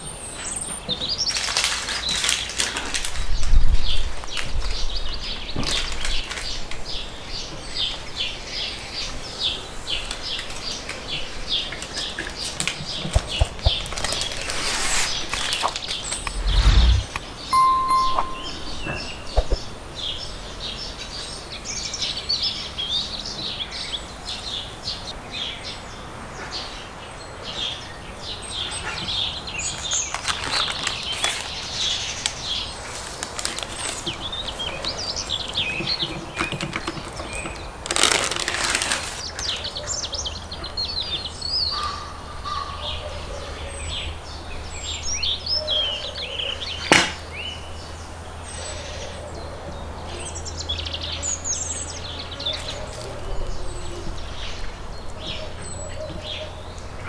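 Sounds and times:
baking paper rustle: 1.2s - 3.5s, 13.7s - 16.0s, 29.8s - 34.6s, 37.9s - 39.5s.

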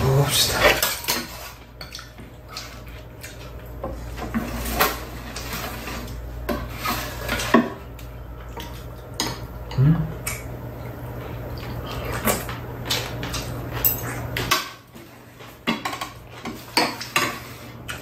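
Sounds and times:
utensils clinking metal bowls: 12.2s - 14.9s.

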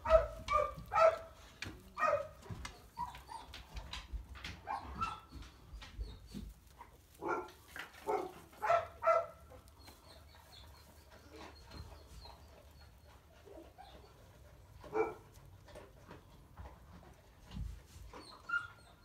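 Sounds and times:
straw rustling: 0.0s - 12.6s
puppies whimpering: 2.6s - 3.9s, 18.1s - 19.0s.

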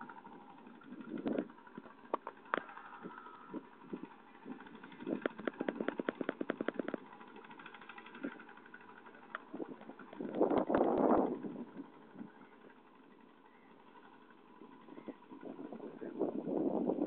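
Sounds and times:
rapid clicks: 0.0s - 15.7s
engine running: 0.0s - 17.0s.

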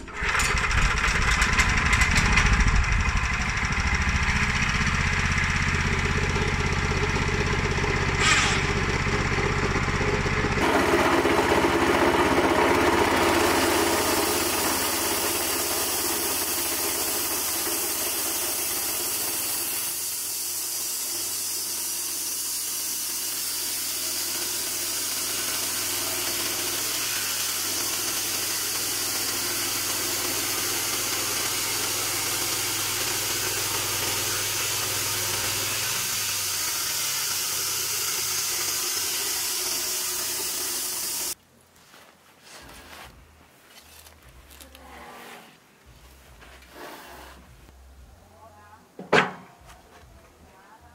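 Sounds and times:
sawmill engine running: 0.0s - 41.4s
band saw cutting wood: 3.8s - 9.0s, 10.6s - 41.4s.

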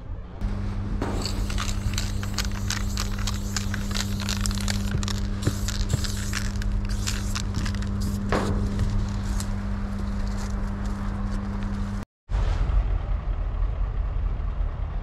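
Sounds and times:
steady low hum: 0.0s - 12.0s
spray paint can hissing: 1.0s - 9.6s.

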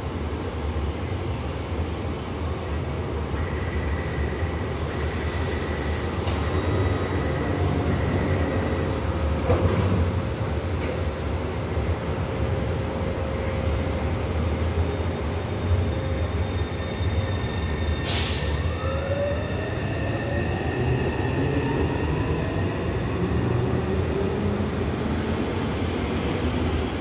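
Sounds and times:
train brake hiss: 18.0s - 18.7s.

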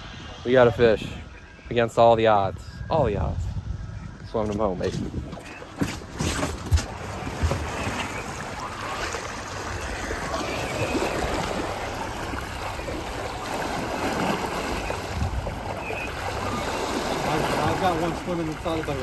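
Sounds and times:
water rushing along boat hull: 4.8s - 19.0s.

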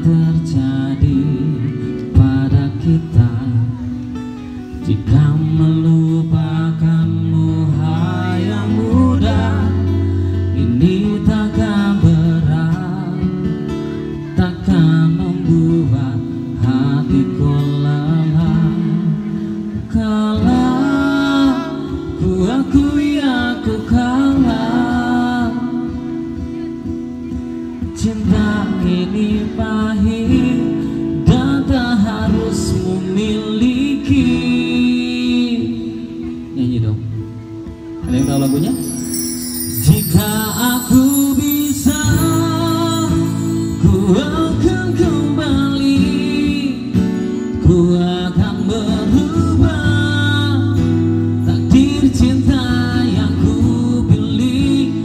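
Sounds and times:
acoustic guitar chords: 0.0s - 55.0s
bending lead melody: 38.0s - 45.3s.

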